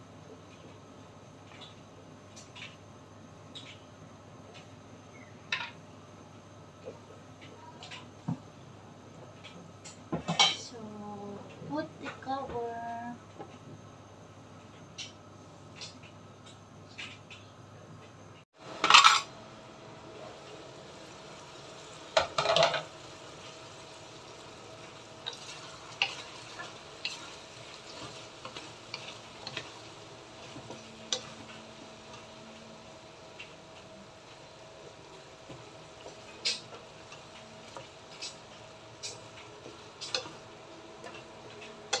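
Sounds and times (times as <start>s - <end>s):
sauce simmering: 22.9s - 42.0s
spatula scraping and tapping pan: 35.5s - 42.0s.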